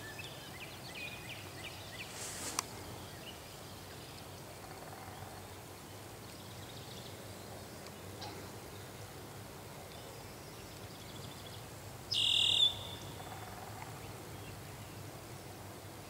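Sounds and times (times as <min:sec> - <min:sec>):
hiss ending in sharp click: 0:02.2 - 0:02.7
distant bird chirps: 0:11.3 - 0:14.2.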